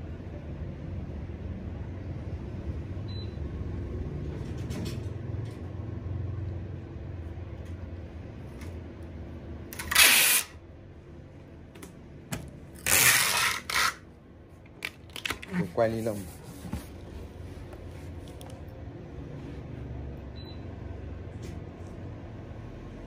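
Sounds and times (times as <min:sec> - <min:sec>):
packing tape ripping off roll: 0:09.8 - 0:10.6, 0:12.8 - 0:14.0.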